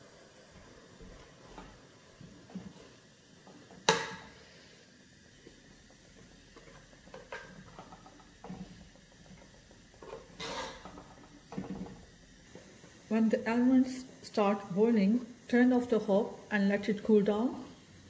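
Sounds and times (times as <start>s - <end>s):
spoon scraping metal pot: 10.0s - 11.9s.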